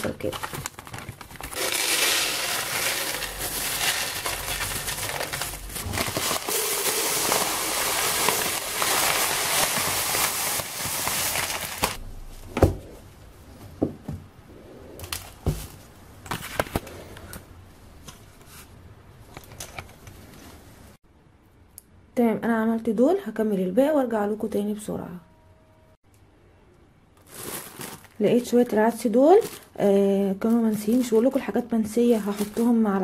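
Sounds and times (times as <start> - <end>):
plastic bag crinkling: 0.0 - 12.0, 27.2 - 33.0
dry pasta pouring into containers: 1.4 - 12.0.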